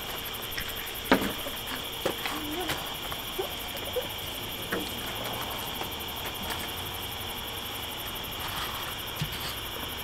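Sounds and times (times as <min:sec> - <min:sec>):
crickets chirping: 0:00.0 - 0:10.0.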